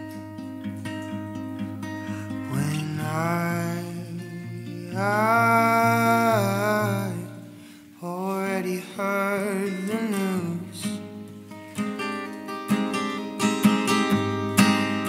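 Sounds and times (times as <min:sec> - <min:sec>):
acoustic guitar ringing: 0:00.0 - 0:15.0
man singing: 0:02.2 - 0:11.2.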